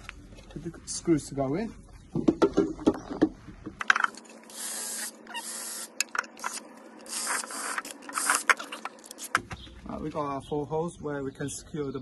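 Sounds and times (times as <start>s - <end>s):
cordless drill boring: 4.5s - 6.5s.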